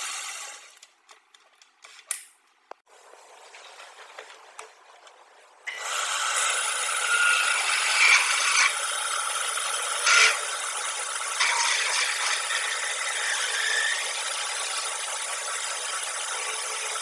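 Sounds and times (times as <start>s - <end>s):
drill grinding into metal: 5.7s - 15.0s
metal lathe spinning: 5.7s - 17.0s.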